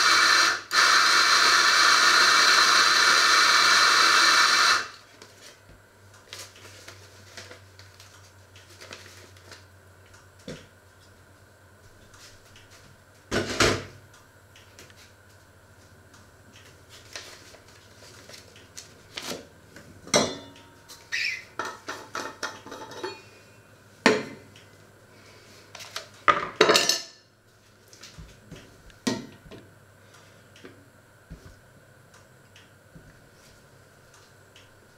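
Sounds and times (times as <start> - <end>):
faint steady hum: 0.0 - 34.9
pots dishes and cutlery clattering: 21.6 - 23.3, 26.3 - 27.2.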